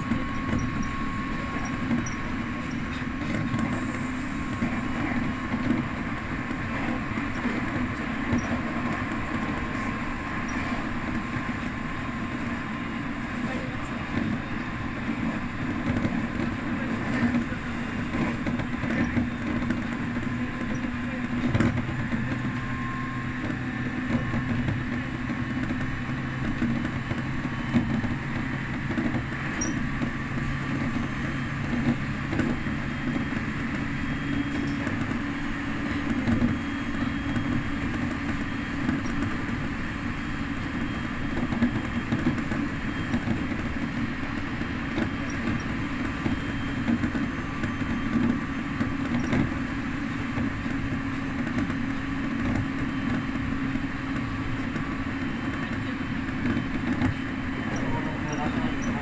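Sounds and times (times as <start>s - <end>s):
train wheels rolling on rail: 0.0s - 59.0s.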